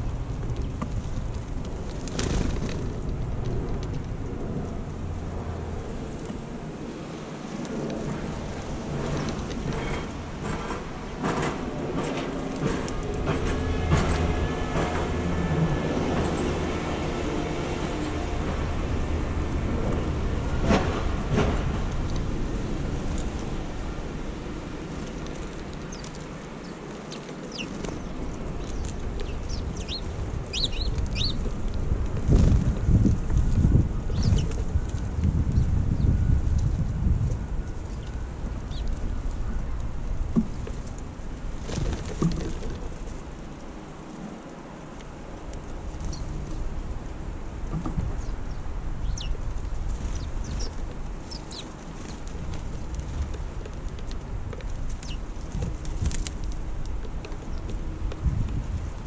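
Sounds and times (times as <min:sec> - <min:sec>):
low background rumble: 0:00.0 - 0:59.0
sparrows chirping: 0:25.8 - 0:31.5, 0:34.1 - 0:34.6, 0:37.8 - 0:39.6, 0:48.2 - 0:51.8, 0:54.9 - 0:55.3.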